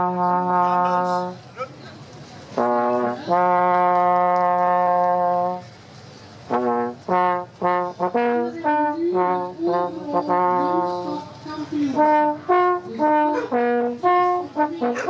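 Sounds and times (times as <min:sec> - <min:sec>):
solo trombone playing: 0:00.0 - 0:01.4, 0:02.6 - 0:05.6, 0:06.5 - 0:15.0.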